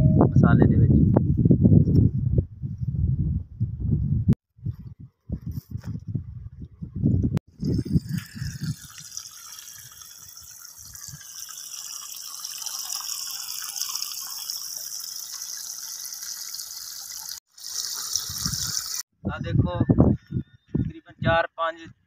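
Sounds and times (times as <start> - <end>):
water hissing from irrigation line: 7.5 - 19.1.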